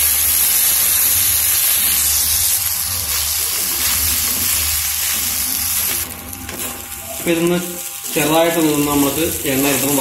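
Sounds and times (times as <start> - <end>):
wheat sizzling in a hot pan: 0.0 - 10.0
spatula stirring: 1.6 - 6.8.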